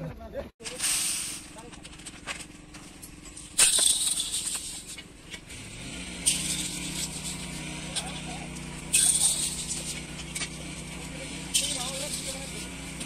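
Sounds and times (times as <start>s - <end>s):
granular mix hissing in steel pan: 0.7s - 1.6s.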